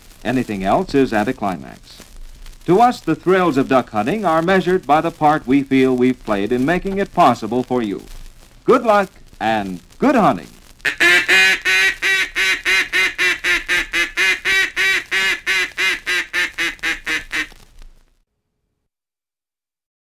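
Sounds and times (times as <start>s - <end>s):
duck call quacks: 10.8s - 17.5s.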